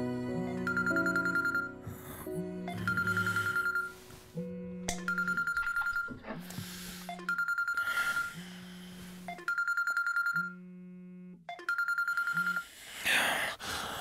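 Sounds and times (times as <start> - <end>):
smartphone ringing: 0.5 - 1.8, 2.6 - 4.1, 4.9 - 6.2, 7.1 - 8.4, 9.2 - 10.6, 11.5 - 12.6.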